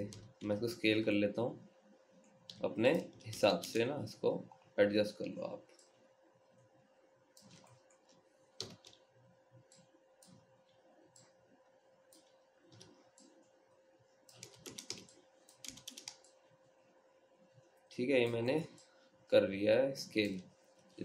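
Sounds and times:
faint steady hum: 0.0 - 21.0
keyboard and mouse clicks: 7.4 - 9.1, 12.1 - 13.5, 14.3 - 16.4.

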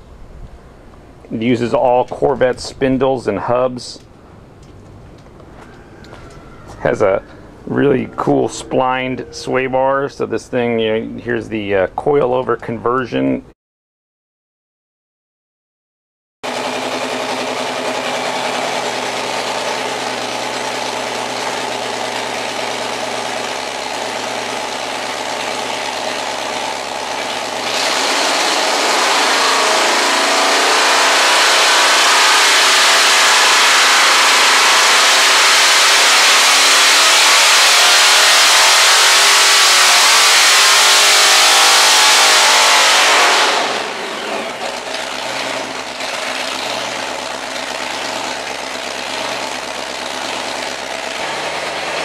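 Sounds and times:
engine revving: 6.9 - 9.8, 16.4 - 52.0.

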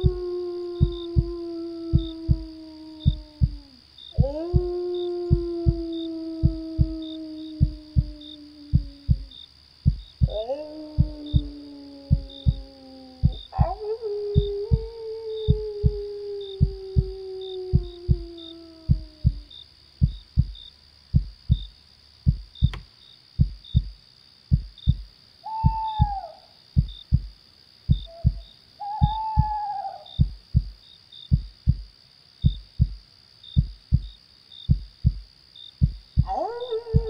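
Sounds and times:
wolf howling: 0.0 - 9.4, 10.2 - 19.5, 25.5 - 26.4, 28.0 - 30.2, 36.2 - 37.0
heartbeat thumps: 0.0 - 26.2, 26.8 - 29.6, 30.2 - 37.0
cricket chirps: 0.0 - 37.0
insect drone: 0.0 - 37.0
owl hooting: 25.5 - 26.5, 28.0 - 30.4.

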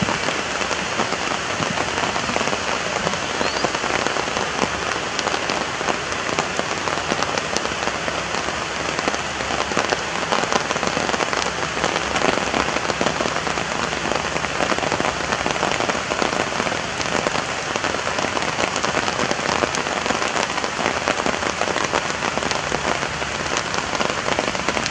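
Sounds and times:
steady rain falling: 0.0 - 24.9.

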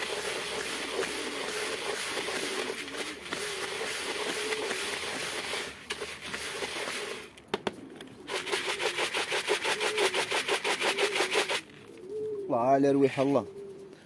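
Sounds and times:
grain rattling in plastic bucket: 0.0 - 7.4, 8.3 - 11.8.

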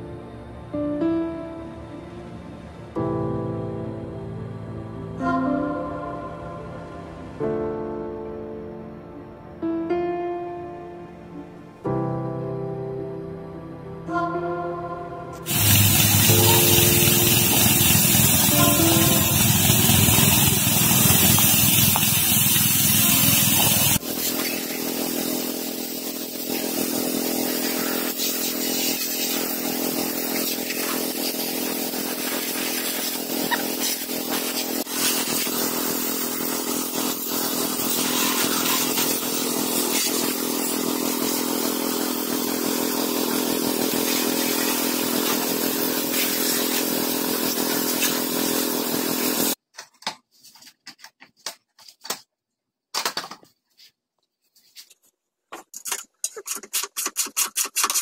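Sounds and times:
small motorcycle engine running: 15.4 - 49.6.

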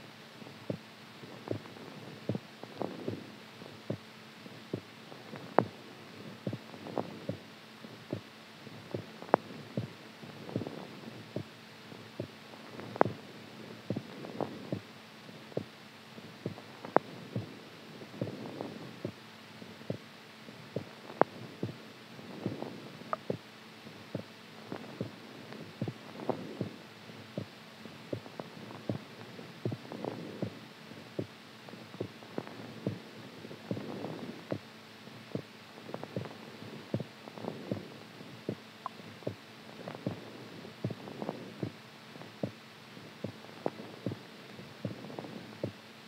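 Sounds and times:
faint steady hum: 0.0 - 46.0
heartbeat thumps: 0.6 - 4.1, 4.7 - 5.8, 6.4 - 7.5, 8.1 - 8.3, 8.9 - 11.5, 12.2 - 14.9, 16.4 - 19.2, 19.8 - 20.1, 20.7 - 26.8, 27.4 - 30.6, 31.2 - 31.4, 32.0 - 34.7, 35.3 - 37.9, 38.5 - 41.8, 42.4 - 42.6, 43.2 - 45.8.

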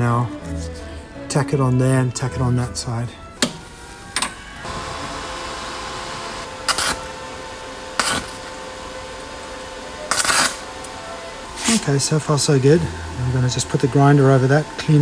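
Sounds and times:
welding arc hiss: 3.5 - 15.0
welding arc spurts: 4.6 - 8.6, 10.1 - 10.9, 11.5 - 15.0.

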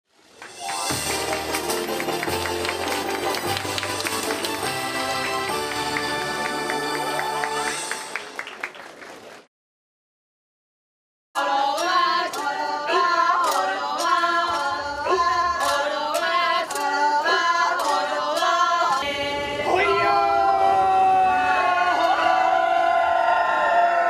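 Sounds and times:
sharp hand claps: 0.4 - 9.5
women singing a chant: 11.4 - 20.2.

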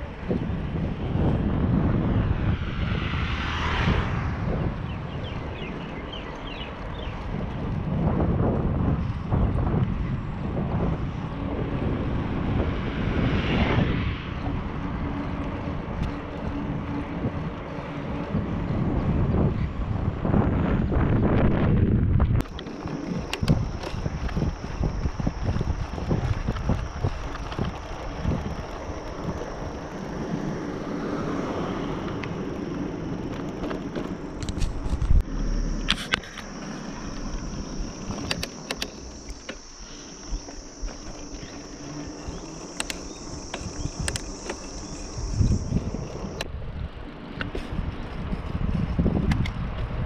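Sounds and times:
bicycle tyres on paved road: 0.0 - 50.0
wind buffeting microphone: 0.0 - 50.0
steady high buzz: 22.4 - 49.2
clicks and rattles over bumps: 35.8 - 46.5.

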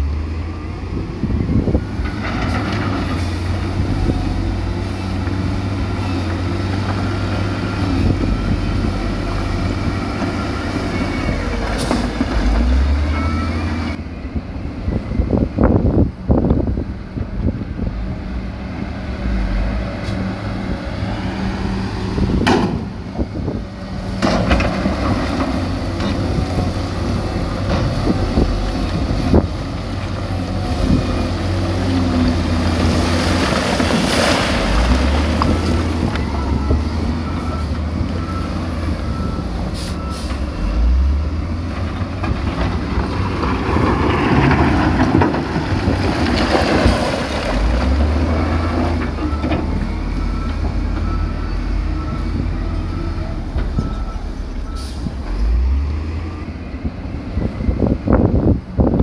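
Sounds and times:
diesel machinery engine hum: 0.0 - 59.0.

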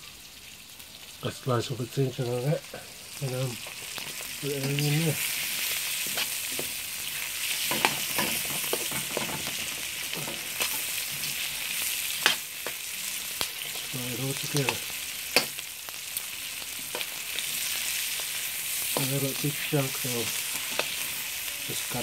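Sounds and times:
onions sizzling in hot oil: 0.0 - 22.0
metal spoon scraping wok: 3.6 - 12.8, 18.9 - 22.0.

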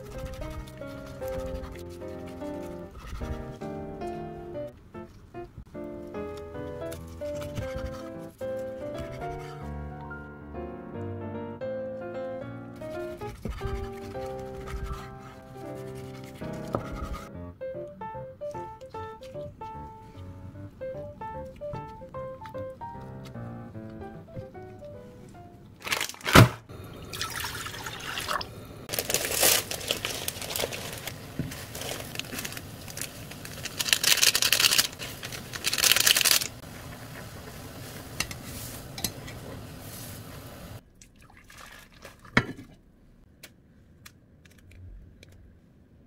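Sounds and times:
plastic packets tearing and crinkling: 25.8 - 26.6, 28.9 - 36.6
water boiling: 26.7 - 33.8, 36.3 - 42.4.

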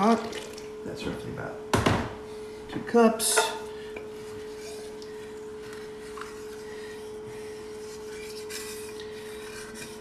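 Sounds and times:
steady hum: 0.0 - 10.0
spoon scraping a pot: 3.2 - 10.0.

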